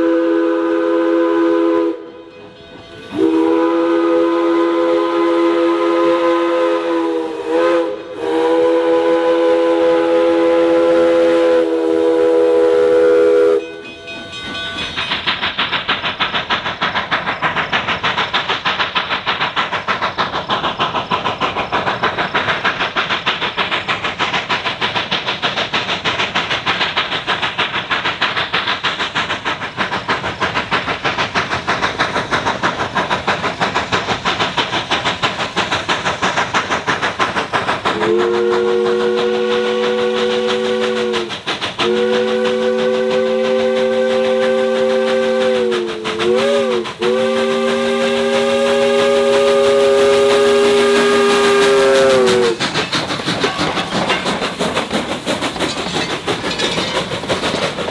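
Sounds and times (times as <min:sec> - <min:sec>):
steam whistle blasts: 0:00.0 - 0:14.1, 0:37.9 - 0:52.6
steam locomotive exhaust chuffs: 0:00.0 - 0:57.9.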